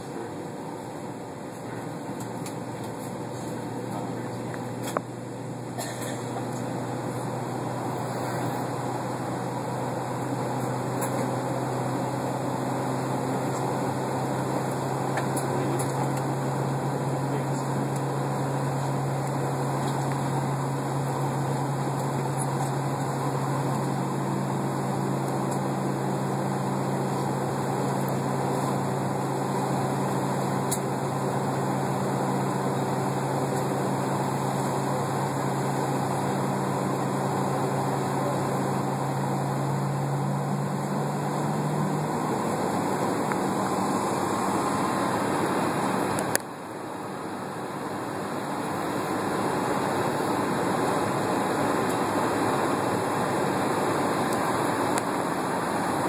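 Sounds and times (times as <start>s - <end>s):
cabin air rush: 13.0s - 56.0s.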